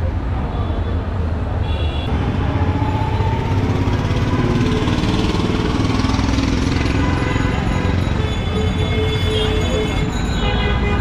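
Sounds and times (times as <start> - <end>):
vehicle engines running: 2.1 - 10.4.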